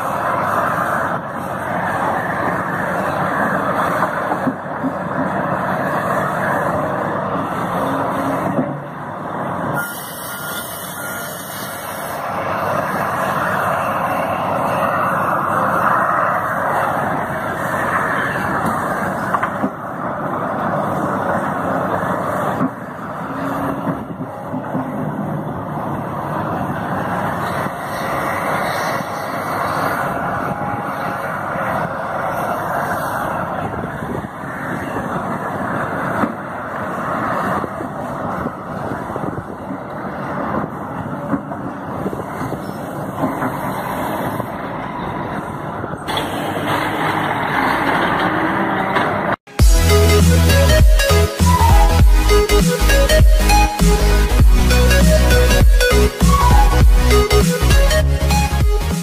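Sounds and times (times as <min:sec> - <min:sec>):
excavator engine and hydraulics: 0:00.0 - 0:59.0.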